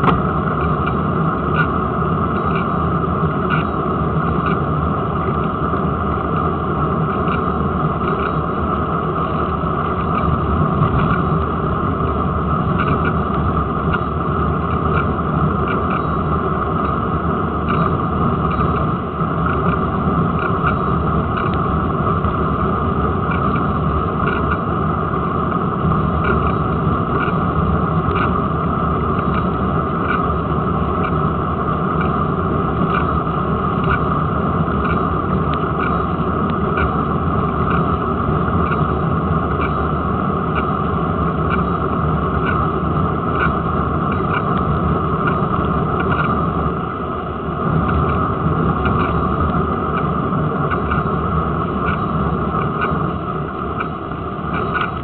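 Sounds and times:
small ticks: 12.8 - 13.2, 20.4 - 21.6, 23.3 - 24.7, 29.2 - 30.3, 32.9 - 33.2, 34.8 - 38.0, 38.6 - 38.9, 39.6 - 39.9, 43.3 - 46.4, 48.8 - 50.1, 50.7 - 51.2, 51.8 - 53.0, 53.8 - 55.0.

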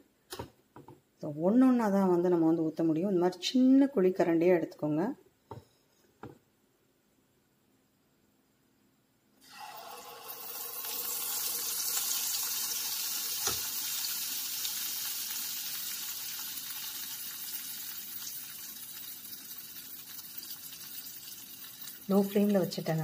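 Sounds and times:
batter sizzling in hot oil: 9.4 - 23.0.

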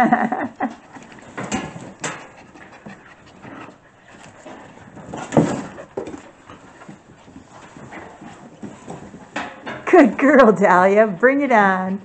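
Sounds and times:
puppies scuffling in fabric tunnel: 3.4 - 9.4.

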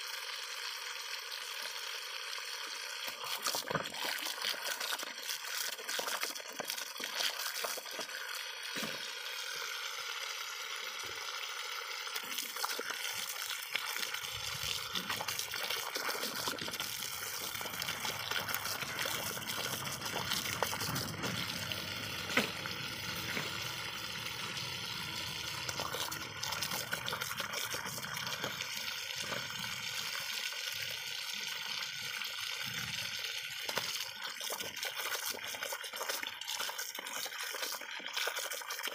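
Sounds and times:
dog lapping at water jet: 0.0 - 38.9
water spurting from hose: 0.0 - 38.9.

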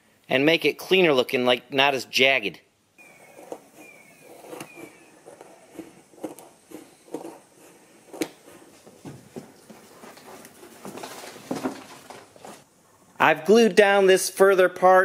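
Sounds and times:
scissors snipping vinyl flooring: 3.4 - 8.6.

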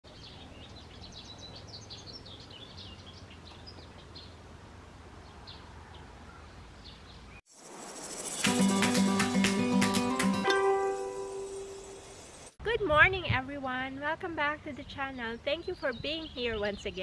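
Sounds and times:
small songbirds chirping: 0.1 - 4.5, 5.2 - 8.8, 14.7 - 17.0.

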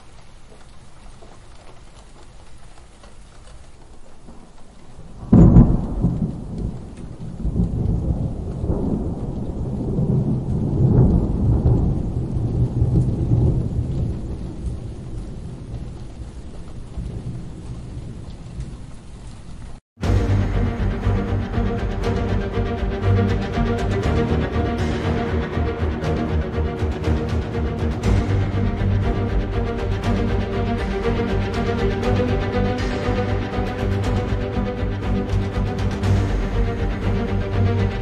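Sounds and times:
steady rain: 0.0 - 38.0
thunderclap rolling into rumble: 5.0 - 19.6.

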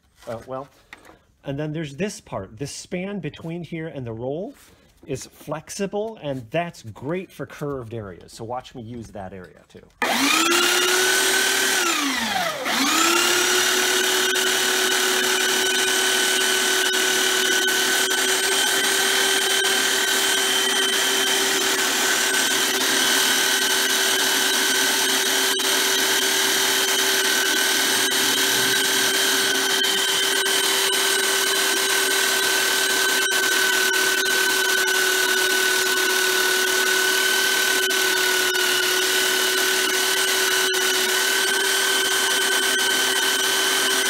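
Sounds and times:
belt sander motor whine: 10.0 - 44.0.

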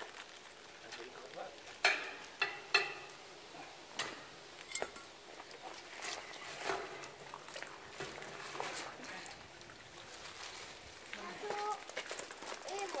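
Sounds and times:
metal clinking against railing: 4.6 - 5.1.

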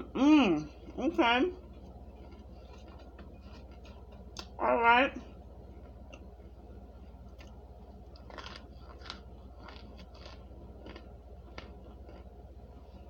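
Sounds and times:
person chewing crunchy food: 1.6 - 4.5, 7.2 - 13.0.

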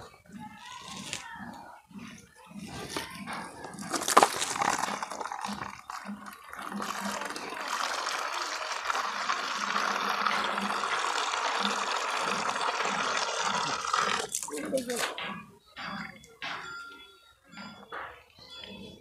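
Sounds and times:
water pouring into plastic basin: 3.7 - 15.1.

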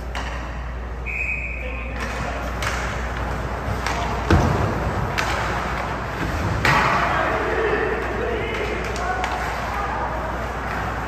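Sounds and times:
hockey sticks and puck clacking: 0.0 - 0.8, 1.8 - 11.0.

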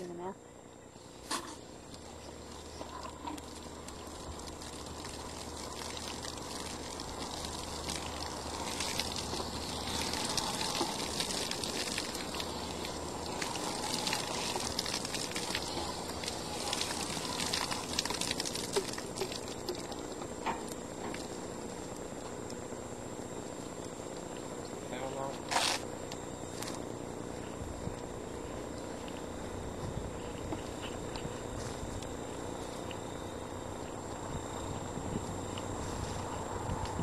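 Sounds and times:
water from hose splashing: 1.1 - 21.9, 25.4 - 25.9.

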